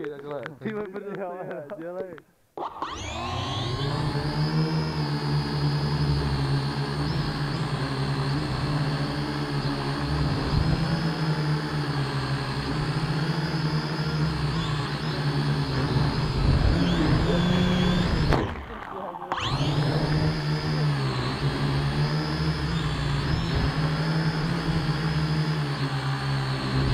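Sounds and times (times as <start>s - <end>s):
drone propellers whirring: 2.6s - 26.9s.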